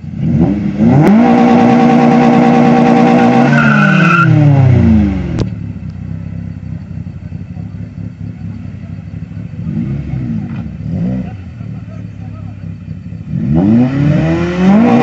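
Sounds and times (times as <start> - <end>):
car engine revving hard: 0.0 - 5.4, 9.4 - 11.7, 13.1 - 15.0.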